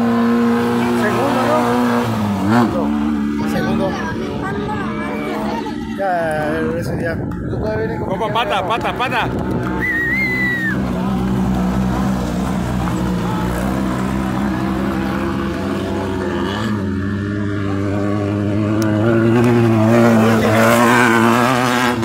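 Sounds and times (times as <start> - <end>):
race buggy engines passing: 0.0 - 22.0
short whistle: 9.8 - 10.8.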